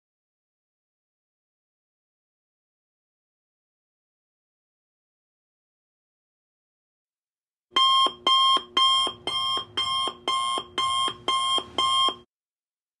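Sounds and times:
timer alarm beeps: 0:07.8 - 0:12.3.

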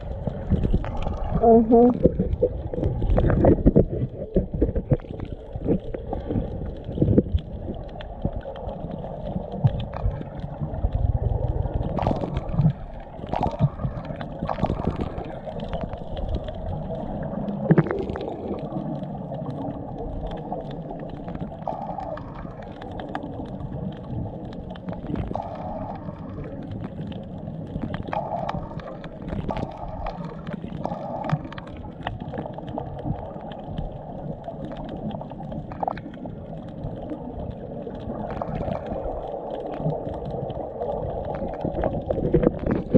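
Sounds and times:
underwater swishing and gurgling: 0:00.0 - 0:42.9
underwater knocks: 0:00.3 - 0:07.4.

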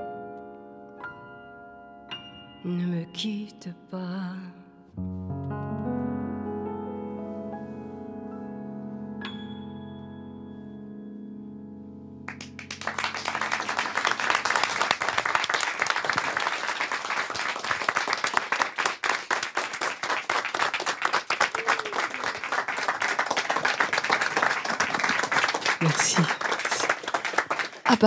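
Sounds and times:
piano chord ringing: 0:08.5 - 0:12.4
audience applauding: 0:12.3 - 0:28.0.

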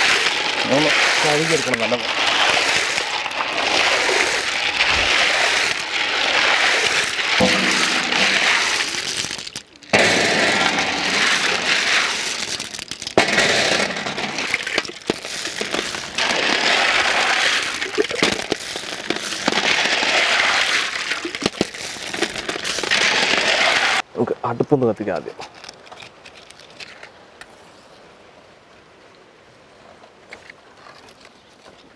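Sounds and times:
water sloshing in metal basin: 0:00.0 - 0:09.7
clam shells clattering: 0:00.0 - 0:24.0, 0:25.4 - 0:27.2.

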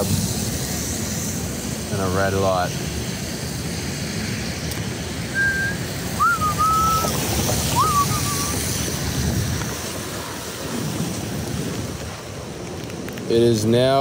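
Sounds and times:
heavy rain hissing: 0:00.0 - 0:14.0
low rumble of city traffic: 0:00.0 - 0:14.0
person whistling: 0:05.3 - 0:07.1, 0:07.8 - 0:08.6.

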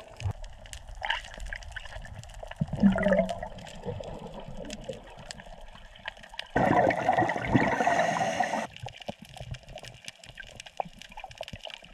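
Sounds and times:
faint crackling clicks: 0:00.0 - 0:06.6, 0:08.4 - 0:11.9
underwater air bubbles rushing: 0:00.0 - 0:08.8.

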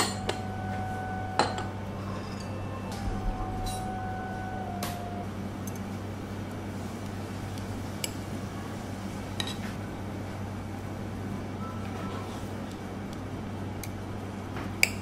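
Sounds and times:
low hum: 0:00.0 - 0:08.5.

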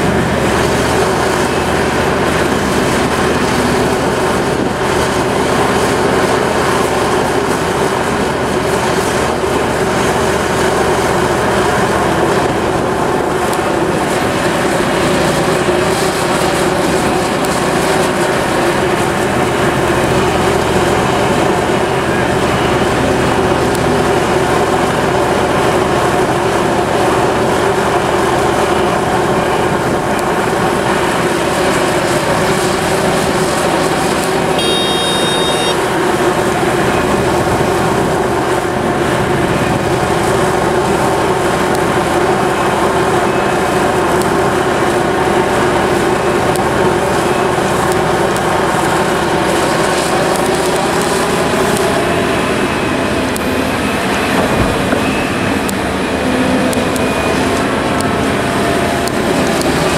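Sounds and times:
excavator diesel engine droning: 0:00.0 - 0:59.9
short high beep: 0:34.6 - 0:35.9.

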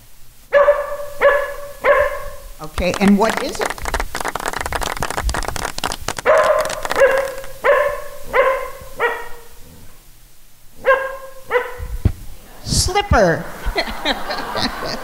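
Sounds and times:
dog barking: 0:00.5 - 0:02.5, 0:06.2 - 0:09.6, 0:10.8 - 0:12.0
audience applause: 0:02.7 - 0:07.6.

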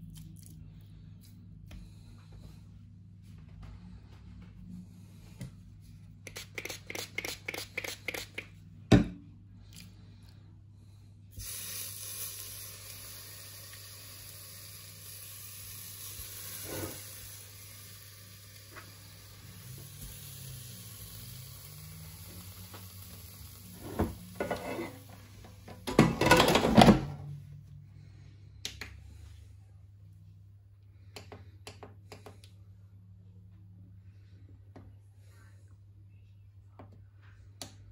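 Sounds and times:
steady hiss: 0:11.3 - 0:25.4
cookware clattering: 0:25.8 - 0:27.1.

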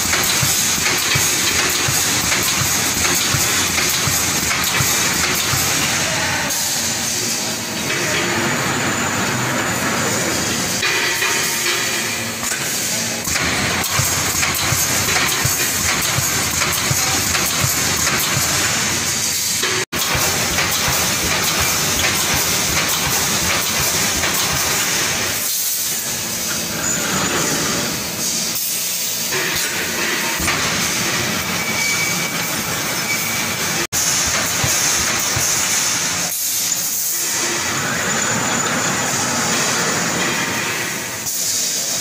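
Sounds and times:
rapid clatter of welding heads: 0:00.0 - 0:06.0, 0:10.8 - 0:25.6
welding machine hiss: 0:00.0 - 0:08.4, 0:09.7 - 0:42.0.

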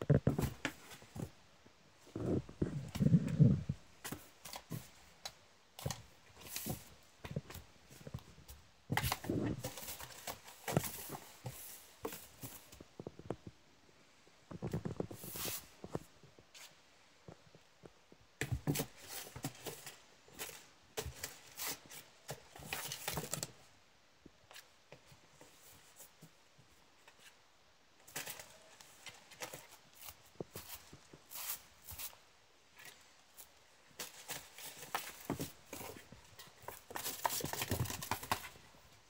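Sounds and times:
paper balls rattling in box: 0:34.0 - 0:38.6.

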